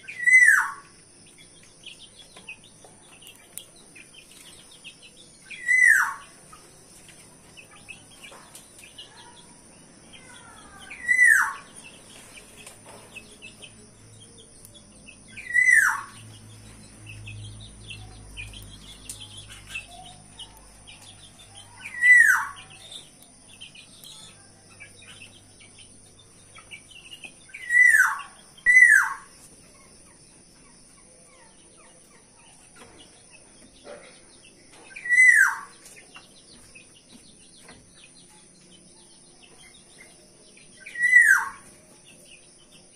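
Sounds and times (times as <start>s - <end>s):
faint small birds twittering: 0.0s - 42.9s
bird whistled downward calls: 5.6s - 6.2s, 15.4s - 16.1s, 27.6s - 29.3s, 35.0s - 35.7s, 40.9s - 41.6s.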